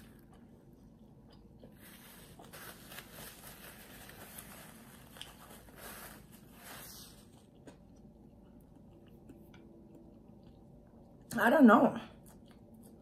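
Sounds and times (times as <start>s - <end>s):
paper wrapper crinkling: 1.9s - 7.4s.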